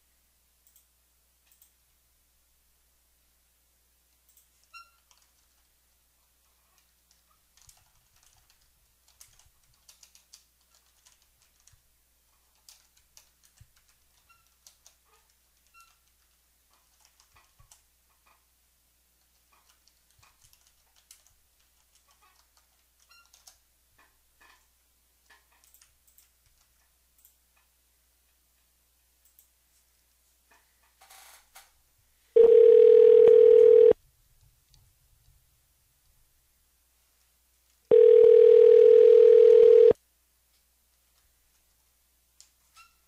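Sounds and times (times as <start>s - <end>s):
computer keyboard typing: 4.3s - 5.7s, 6.8s - 11.8s, 12.4s - 17.8s, 19.2s - 23.6s.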